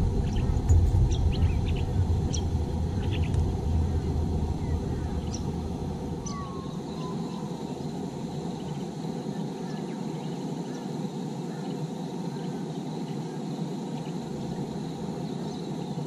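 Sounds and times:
steady low rushing noise: 0.0 - 9.4
birds calling faintly: 0.0 - 16.0
bird chirps: 0.2 - 5.6, 6.2 - 10.8.

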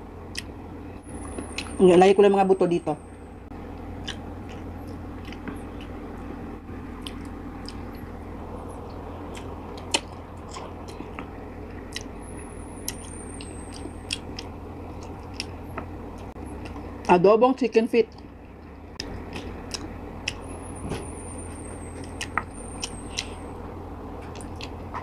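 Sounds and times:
steady low hum: 0.0 - 25.0
chewing and gnawing: 0.3 - 0.5, 3.7 - 8.1, 8.8 - 17.1, 18.1 - 23.4, 24.2 - 25.0
wet mouth clicks: 4.0 - 5.9, 7.0 - 7.8, 9.3 - 11.2, 11.9 - 12.1, 19.3 - 20.4.

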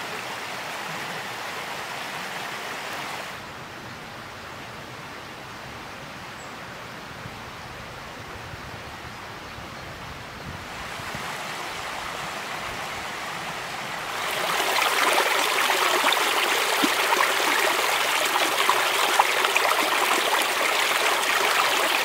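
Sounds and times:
stream splashing over rocks: 10.8 - 22.0.

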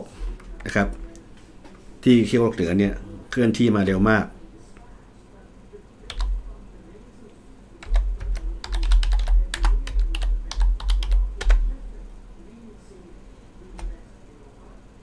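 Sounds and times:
computer keyboard typing: 6.1 - 6.4, 7.8 - 11.8.

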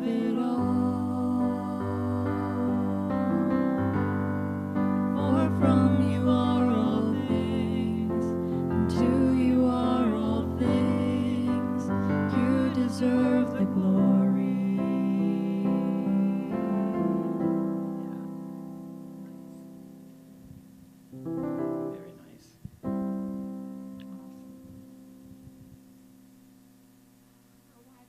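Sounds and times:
women singing worship song: 0.0 - 4.2, 5.0 - 17.5
electric keyboard: 0.0 - 26.8.

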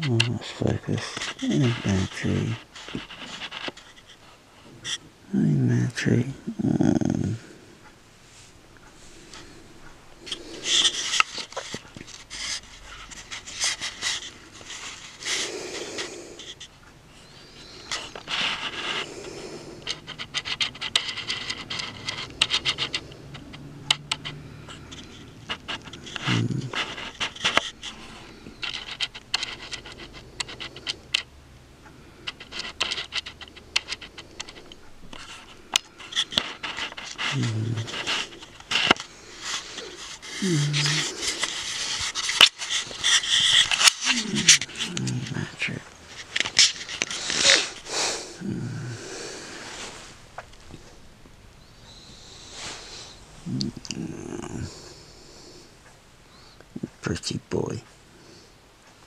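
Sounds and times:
breathing close to microphone: 7.3 - 23.6, 33.5 - 56.8
soft handling rustling: 32.3 - 55.0.

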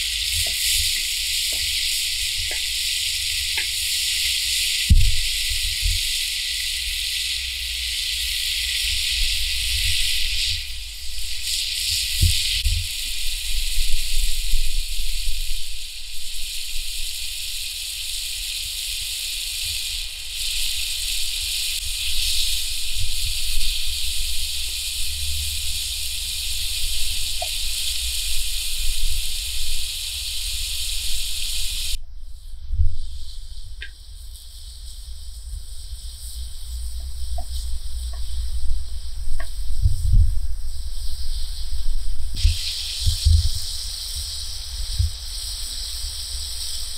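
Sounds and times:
meat sizzling in pan: 0.0 - 46.9.

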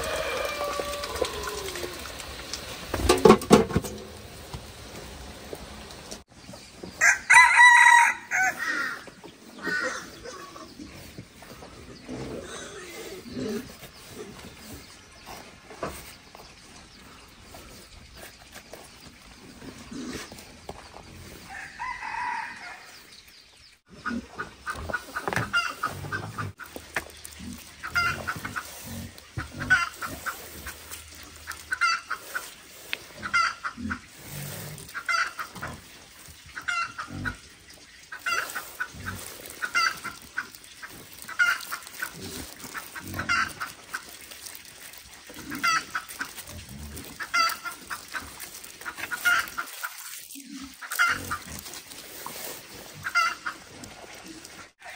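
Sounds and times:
chicken clucking: 23.9 - 27.1, 27.7 - 30.8, 31.4 - 34.1, 36.5 - 44.0, 45.4 - 46.4, 47.0 - 50.0, 50.7 - 51.5, 53.0 - 53.7.

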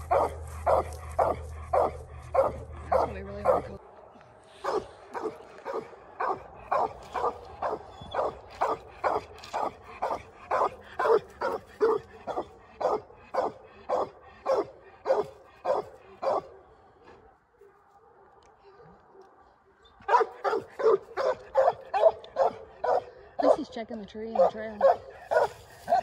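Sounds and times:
dog barking: 0.0 - 4.0, 4.6 - 16.8, 19.1 - 23.7, 24.3 - 26.0.

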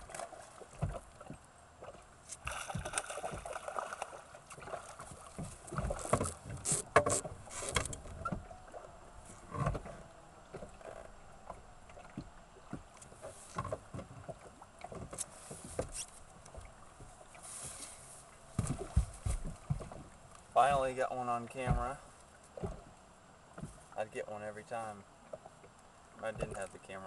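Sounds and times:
knocks against boat: 0.0 - 1.4, 2.4 - 3.6, 5.0 - 8.5, 9.5 - 17.1, 18.5 - 21.0, 21.6 - 22.0, 22.6 - 22.9, 23.6 - 23.8, 26.3 - 26.7
fish splashing in water: 0.0 - 6.5.

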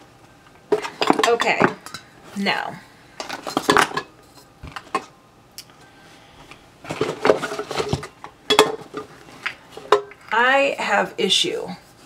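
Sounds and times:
bottles and cans clinking: 3.2 - 4.1, 6.9 - 9.1.

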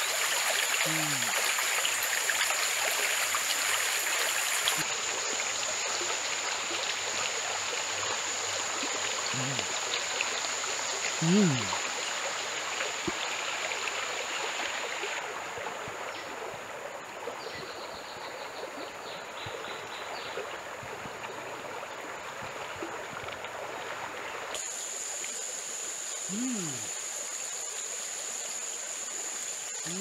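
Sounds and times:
water running: 0.0 - 4.9, 8.8 - 12.0, 26.2 - 30.0.

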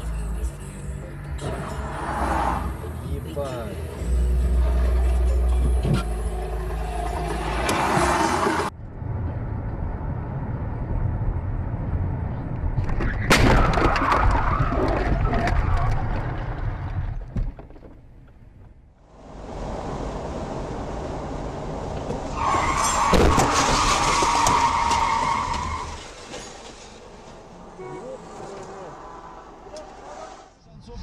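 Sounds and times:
car engine and road noise: 0.0 - 31.0
loud car crash: 12.8 - 17.4, 22.2 - 27.5
metal crunching and scraping: 22.6 - 27.6.

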